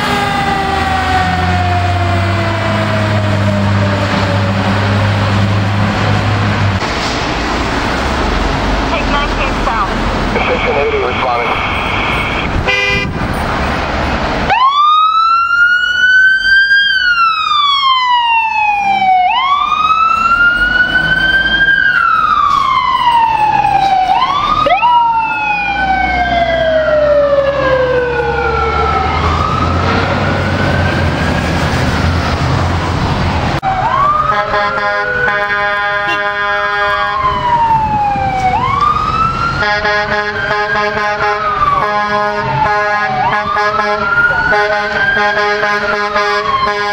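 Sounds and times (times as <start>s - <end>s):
diesel engines running: 0.0s - 46.9s
fire truck mechanical sirens: 0.0s - 46.9s
air horn blasts: 12.6s - 13.2s, 34.3s - 37.3s, 39.6s - 46.9s.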